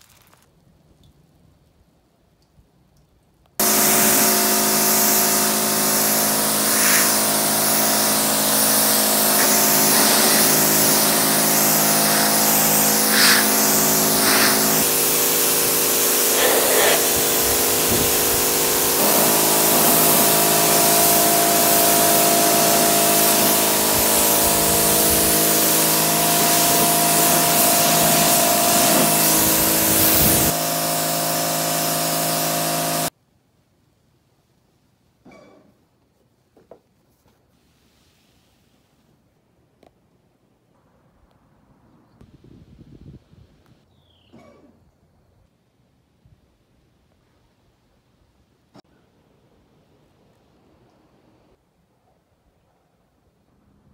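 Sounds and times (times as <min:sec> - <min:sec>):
pressure washer spray hiss: 0:03.6 - 0:33.1.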